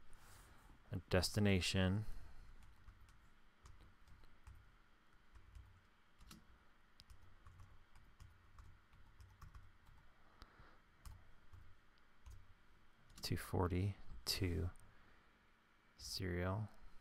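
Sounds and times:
faint keyboard typing: 2.4 - 13.4.

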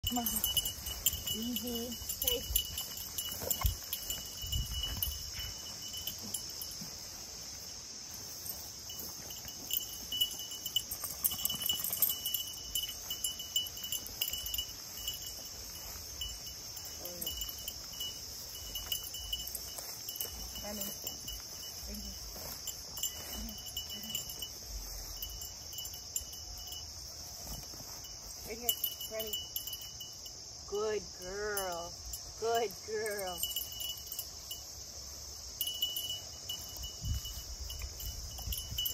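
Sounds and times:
high insect buzz: 0.0 - 30.7
cricket pulsing chirp: 0.0 - 38.9.

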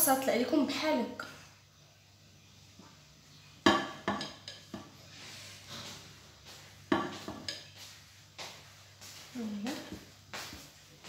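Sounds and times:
spoon knocking against bowl: 3.7 - 4.9, 6.9 - 7.7.

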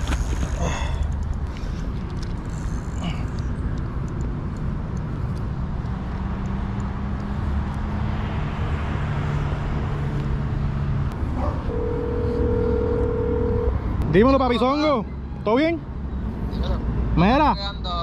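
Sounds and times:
engine hum: 0.0 - 14.6
road traffic rumble: 0.0 - 18.0.

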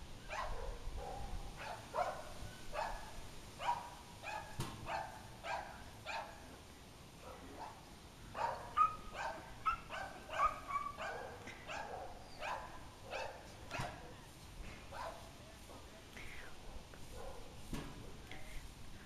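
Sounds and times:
dog barking: 0.3 - 6.4, 7.2 - 7.8, 8.4 - 14.3, 14.9 - 15.3, 16.6 - 17.6.

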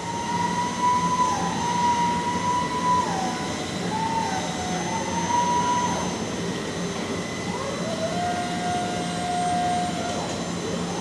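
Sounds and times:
crane whine: 0.0 - 11.0
machinery hum: 0.0 - 11.0.

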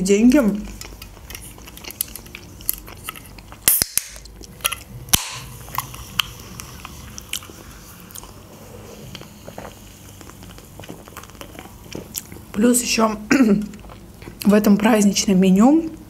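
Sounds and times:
quiet chewing: 0.2 - 15.0
can clicking and cracking open: 3.0 - 5.5.

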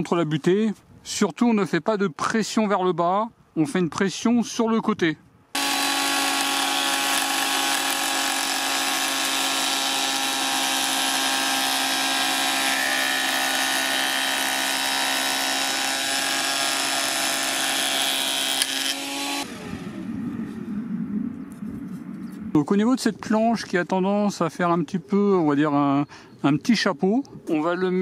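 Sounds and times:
planer whining: 5.6 - 19.9.

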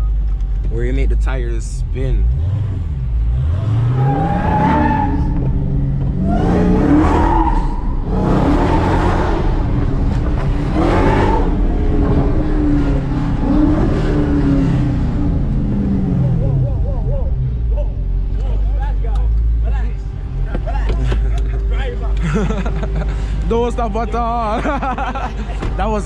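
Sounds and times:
car engine revving: 0.5 - 26.0
tyres squealing: 4.0 - 5.5, 6.2 - 9.3.

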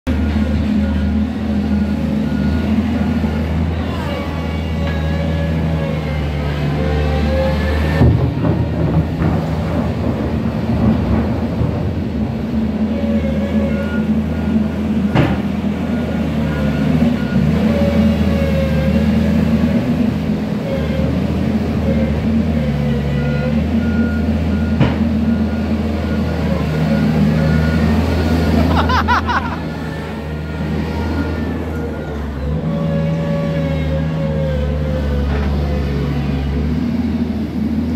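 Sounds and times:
reversing alarm beeping: 0.1 - 8.0, 12.9 - 20.1, 20.7 - 35.3
diesel engine running: 0.1 - 37.9.

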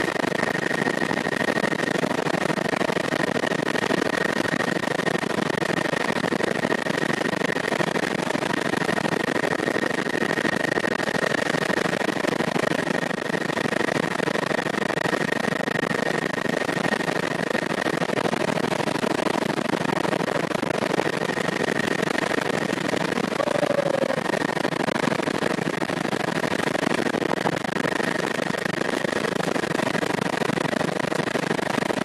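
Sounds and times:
helicopter engine and rotor noise: 0.0 - 32.0
high whine: 23.0 - 24.6.

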